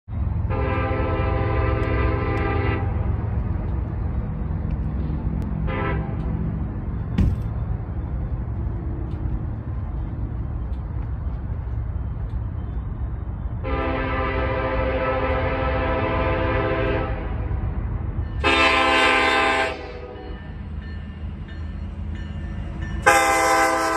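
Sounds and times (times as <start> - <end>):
diesel engines rumbling: 0.1 - 23.9
locomotive air horn blasts: 0.5 - 3.0, 5.6 - 6.3, 13.6 - 17.5, 18.4 - 20.3, 23.0 - 23.9
sharp knock: 7.2 - 7.6.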